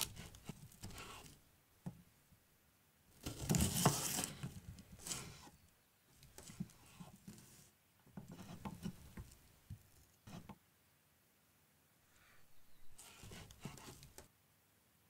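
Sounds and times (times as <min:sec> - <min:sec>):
knife slicing through onion: 0:00.0 - 0:01.3, 0:03.2 - 0:04.4
knife tapping and scraping board: 0:03.3 - 0:04.3, 0:08.2 - 0:09.3, 0:10.3 - 0:10.6.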